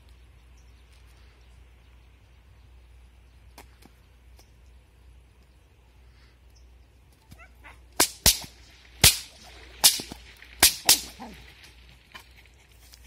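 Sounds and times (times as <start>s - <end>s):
bullwhip cracking: 7.3s - 11.8s.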